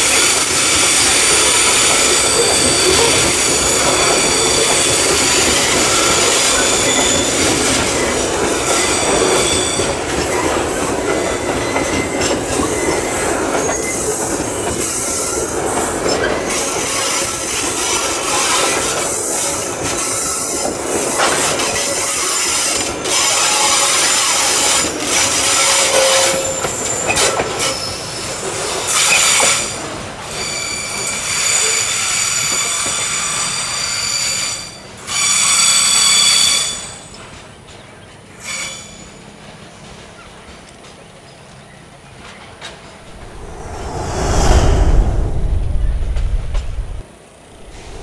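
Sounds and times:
train wheels clattering on rails: 0.0 - 33.7
high-pitched flange squeal: 43.1 - 47.0.

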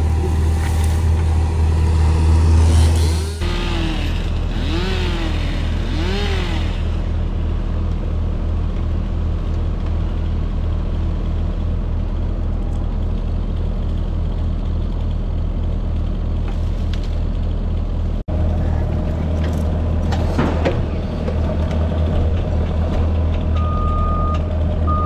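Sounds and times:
loader engine running: 0.0 - 25.0.

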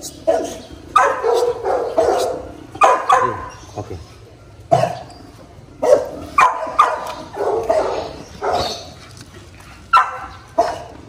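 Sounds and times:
dog barking: 0.3 - 3.6, 5.8 - 8.8, 9.9 - 11.0.

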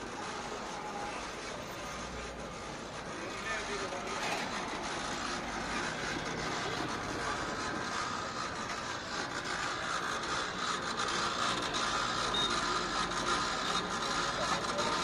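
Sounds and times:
popcorn machine whirring: 0.0 - 15.0.

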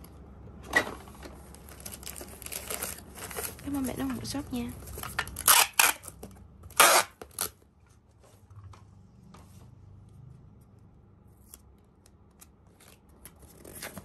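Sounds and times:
packing tape screeching off roll: 5.4 - 6.1, 6.7 - 7.6.

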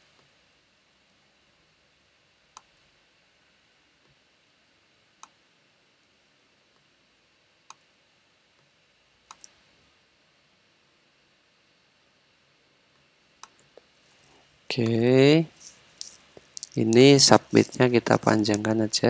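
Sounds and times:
computer mouse clicks: 9.3 - 9.6, 13.4 - 13.8.

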